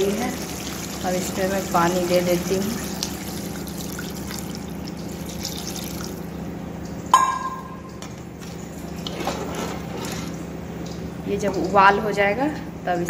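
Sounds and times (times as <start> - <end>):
water pouring into pan: 0.0 - 6.3
gravy simmering: 0.0 - 12.2.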